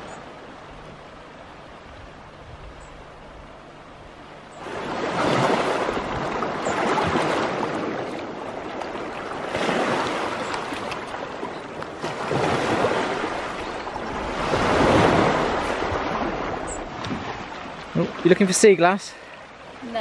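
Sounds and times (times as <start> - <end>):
small waves breaking on sand: 4.6 - 20.0.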